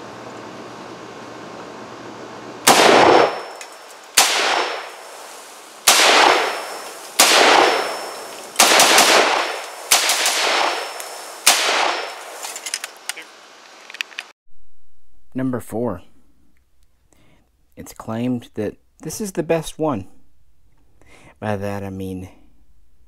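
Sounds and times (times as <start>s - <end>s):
rifle shots with echo: 2.6s - 5.1s, 5.8s - 12.4s.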